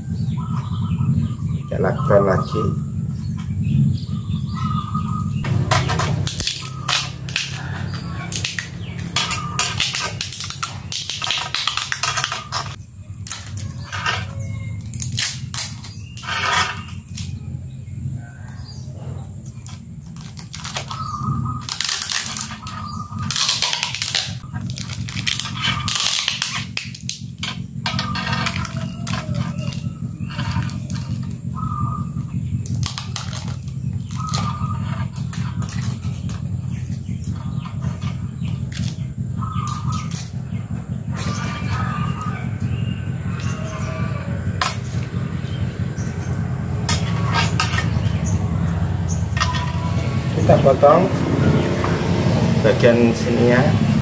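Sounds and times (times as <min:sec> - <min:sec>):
packing tape pulled off roll: 0:21.6 - 0:27.6.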